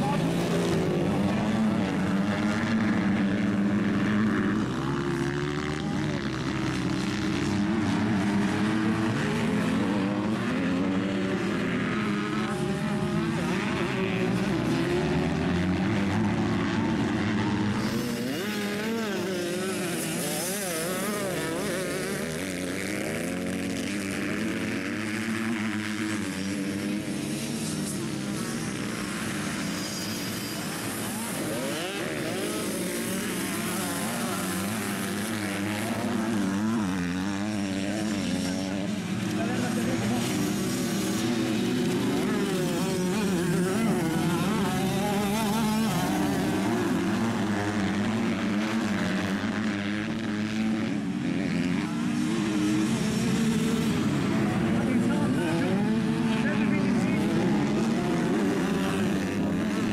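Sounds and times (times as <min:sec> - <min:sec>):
motocross bike engines revving: 0:00.0 - 0:59.9.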